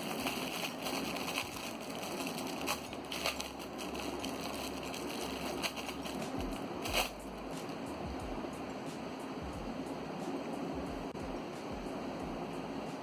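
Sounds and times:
plastic packaging crinkling: 0:00.0 - 0:07.2
steady background hiss: 0:00.0 - 0:13.0.

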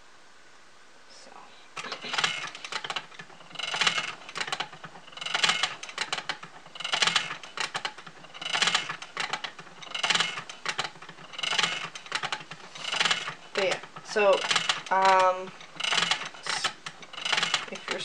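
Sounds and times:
spinning wheel clicking clatter: 0:01.8 - 0:18.0.

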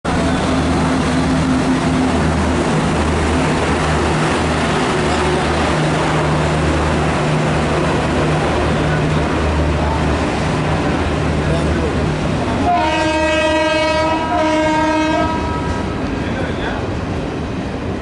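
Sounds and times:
wheels rumbling on rails: 0:00.0 - 0:18.0
low wavering locomotive hum: 0:00.1 - 0:18.0.

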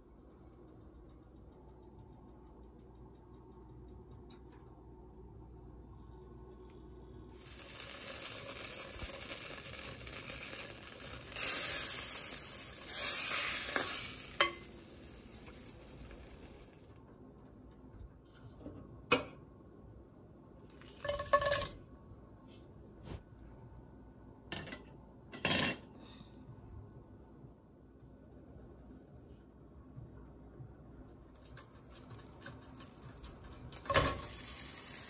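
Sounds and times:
margarine sizzling in frying pan: 0:07.3 - 0:16.8, 0:32.8 - 0:35.0
wooden spoon stirring: 0:07.4 - 0:16.6.

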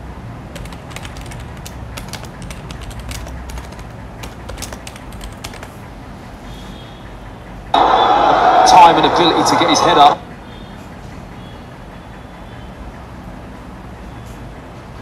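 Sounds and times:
rapid clicking: 0:00.5 - 0:05.8.

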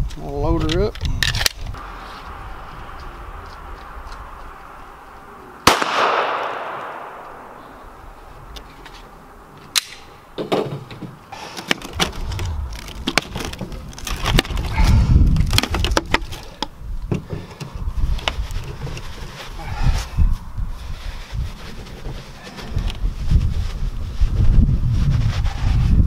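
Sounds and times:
pistol shot with echo: 0:05.6 - 0:07.6.

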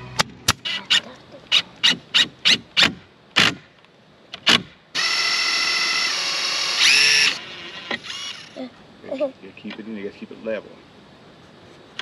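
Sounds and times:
cordless drill drilling into wood: 0:05.0 - 0:08.6.

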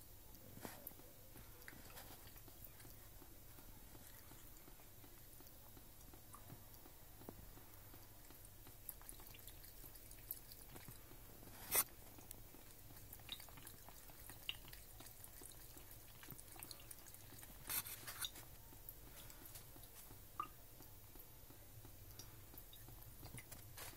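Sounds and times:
water drips: 0:00.0 - 0:23.9
cat lapping water: 0:00.3 - 0:23.9.

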